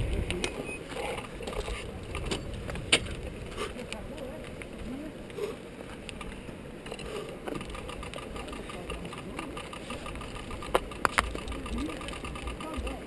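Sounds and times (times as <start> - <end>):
tyres rumbling on gravel: 0.0 - 13.0
bike freewheel hub ticking: 7.6 - 13.0.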